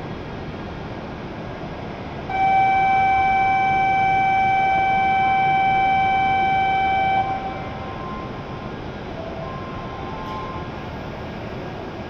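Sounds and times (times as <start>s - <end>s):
station background hiss: 0.0s - 12.0s
departure buzzer long electronic tone: 2.3s - 8.4s.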